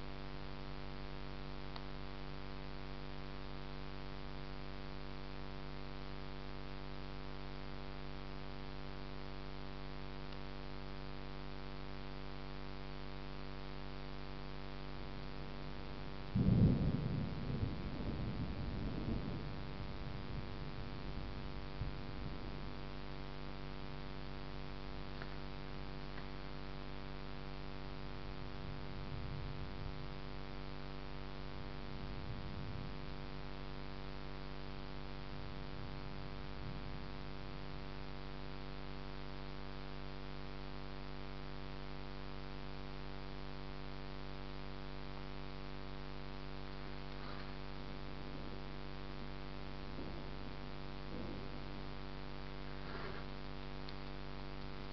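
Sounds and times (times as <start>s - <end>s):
steady electrical hum: 0.0s - 54.9s
low rumble of thunder: 16.3s - 23.0s, 28.2s - 30.6s, 31.5s - 33.4s.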